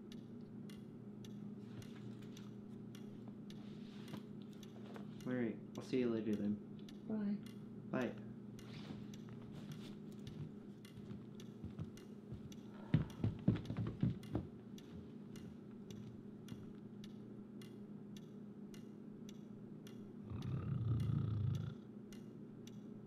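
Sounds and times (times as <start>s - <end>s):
steady low hum: 0.0s - 23.0s
clock ticking: 4.5s - 22.8s.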